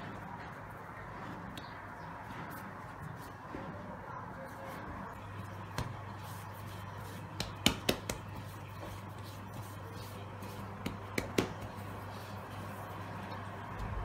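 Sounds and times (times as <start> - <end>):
hands kneading dough: 0.0 - 14.0
steady low hum: 0.0 - 14.0
dough slapping on counter: 5.6 - 12.0.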